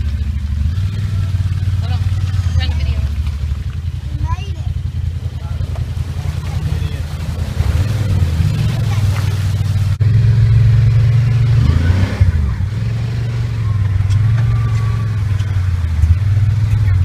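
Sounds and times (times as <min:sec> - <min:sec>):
utility vehicle engines running: 0:00.0 - 0:17.0.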